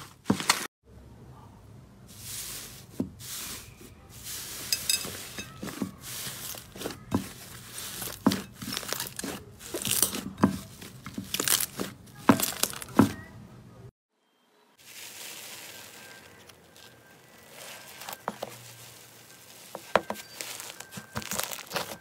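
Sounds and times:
slime crackling and popping: 20.0 - 22.0.

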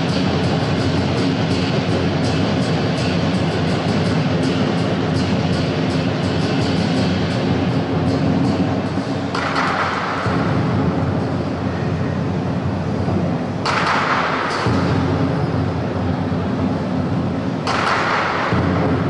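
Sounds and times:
drum roll: 0.0 - 11.6, 17.4 - 19.0
cymbals crashing: 0.0 - 12.2.

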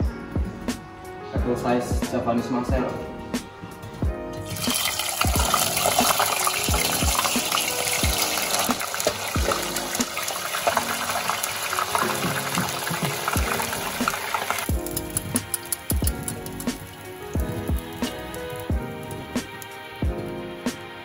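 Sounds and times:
background music: 0.0 - 21.0
fish deep-frying in oil: 4.4 - 20.6.

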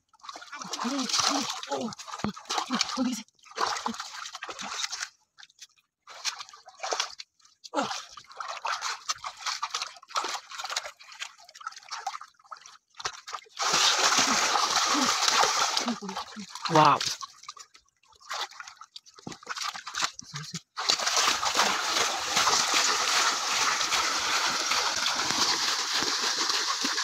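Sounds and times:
muddy water splashing: 0.2 - 27.0
heavy splash: 13.6 - 16.9, 20.8 - 27.0.

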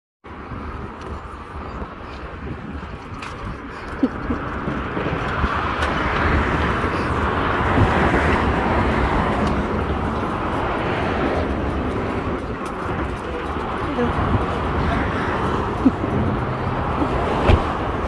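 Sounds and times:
road-side rumble: 0.2 - 18.0
vehicle passing: 3.9 - 18.0.

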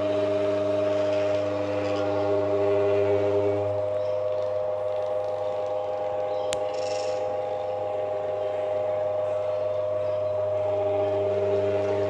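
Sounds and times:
fan motor humming: 0.0 - 12.0.

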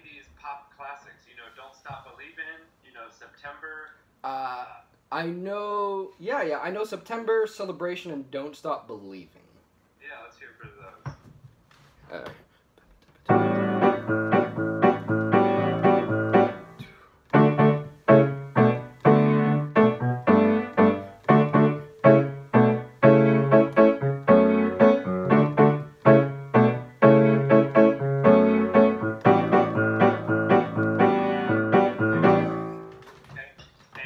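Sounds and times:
piano chords over bass line: 13.3 - 33.0.

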